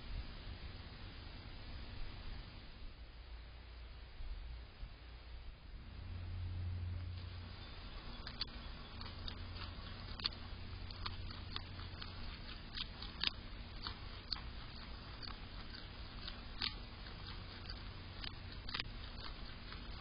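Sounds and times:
animal crunching raw carrot: 7.2 - 20.0.

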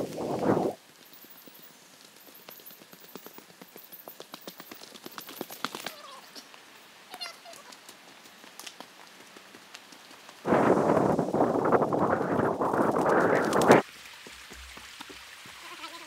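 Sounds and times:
animal calls: 5.8 - 6.4, 7.1 - 7.8.

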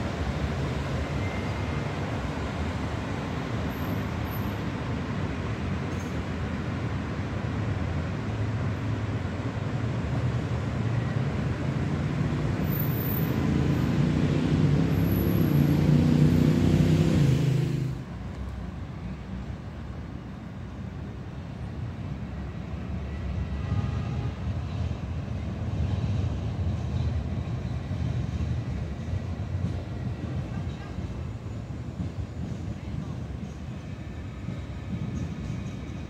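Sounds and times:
street traffic: 0.0 - 36.0
vehicle passing with engine hum: 11.9 - 18.1.

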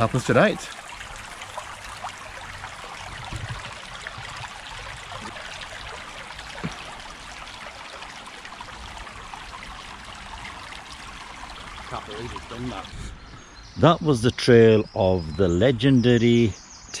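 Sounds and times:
stream running over stones: 0.0 - 13.0.

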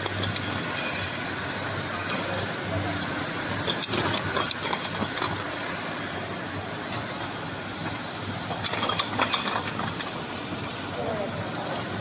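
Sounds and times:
sharp clattering: 3.5 - 5.5, 8.4 - 10.2.

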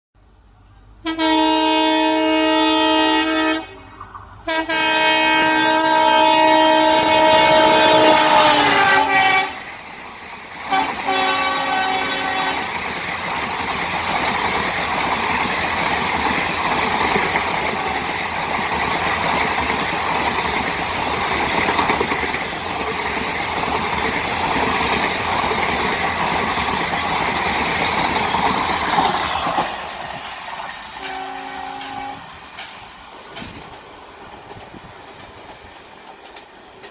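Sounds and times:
train wheels rushing on rails: 0.7 - 36.9
locomotive air horn blasts: 1.0 - 9.7, 10.7 - 12.7, 31.0 - 32.4.

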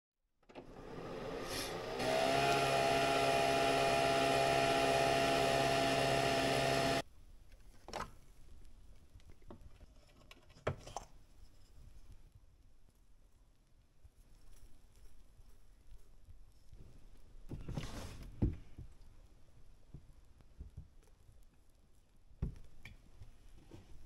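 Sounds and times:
coffee machine motor whir: 0.5 - 7.0.

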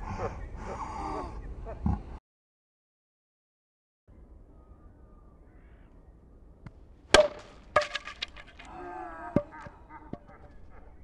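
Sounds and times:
ball striking cricket bat: 7.1 - 8.7
rattle of small knocks: 7.2 - 8.7.

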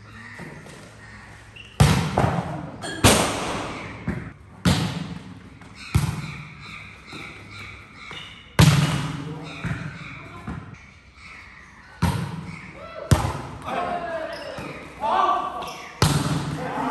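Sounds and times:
volleyball being struck: 16.0 - 16.6.

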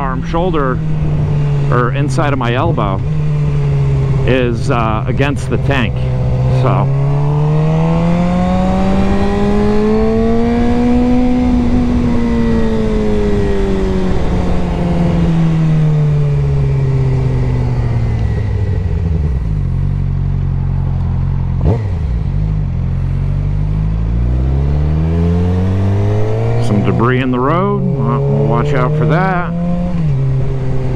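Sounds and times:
wind rush: 0.0 - 19.6
motorcycle engine revving: 0.0 - 30.9.

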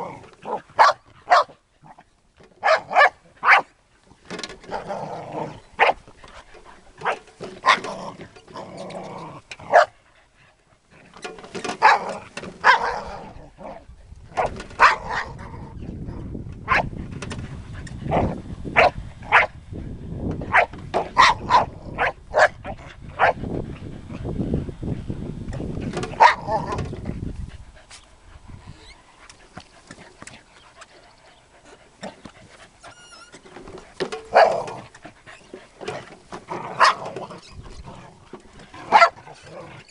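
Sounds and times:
dog barking: 0.5 - 1.5, 2.6 - 3.7, 9.7 - 10.0, 14.8 - 15.2, 20.5 - 22.6, 26.2 - 26.4, 36.8 - 37.0, 38.9 - 39.2.

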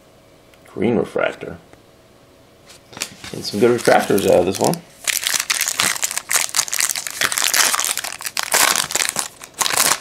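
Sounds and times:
foil wrapper crinkling: 3.0 - 10.0.

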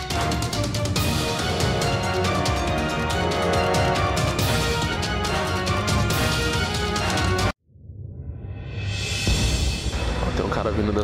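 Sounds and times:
background music: 0.0 - 7.6.

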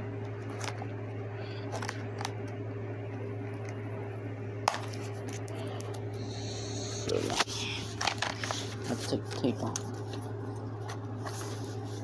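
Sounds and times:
steady low hum: 0.0 - 12.0
hands handling packaging: 7.2 - 12.0.

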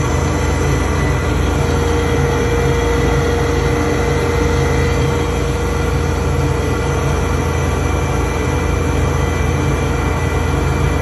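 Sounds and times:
planer and dust collector drone: 0.0 - 11.0.

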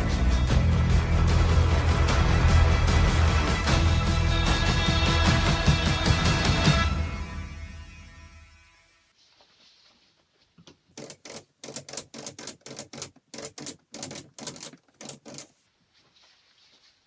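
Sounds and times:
paper backdrop rustling: 9.2 - 11.0, 15.5 - 17.0.

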